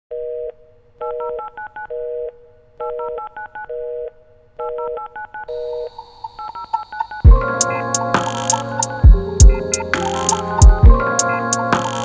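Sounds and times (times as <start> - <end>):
two-note telephone tone: 0.1 - 7.5
keypad dialing beeps: 4.6 - 7.3.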